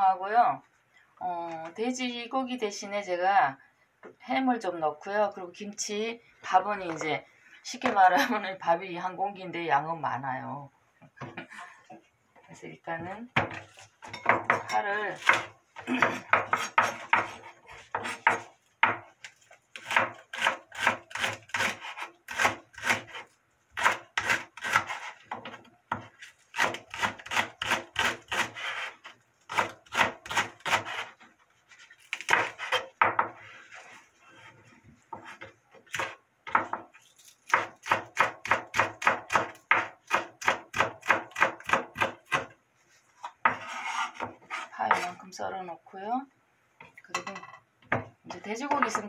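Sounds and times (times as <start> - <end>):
knife chopping on cutting board: 13.4 - 19.1, 19.8 - 23.2, 32.1 - 33.4, 37.5 - 42.5.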